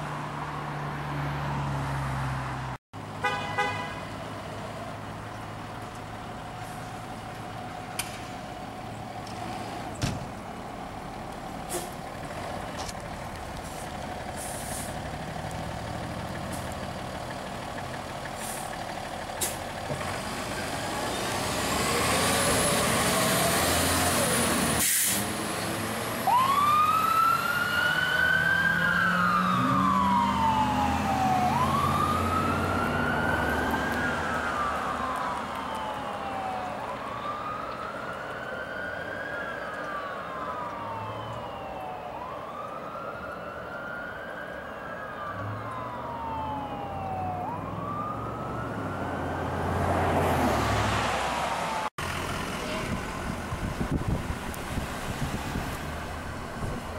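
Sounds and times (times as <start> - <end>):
fire truck diesel engine: 0.0 - 56.9
fire truck siren wailing: 13.6 - 56.9.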